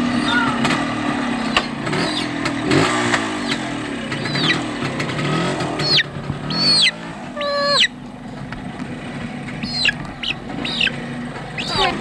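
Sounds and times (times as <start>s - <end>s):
motorcycle engine revving: 0.0s - 12.0s
young chicken squawking: 4.2s - 4.6s, 5.8s - 8.0s, 9.6s - 11.0s, 11.6s - 12.0s.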